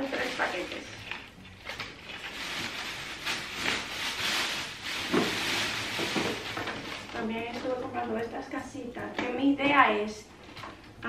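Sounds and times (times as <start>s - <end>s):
plastic bags rustling: 0.0s - 8.6s.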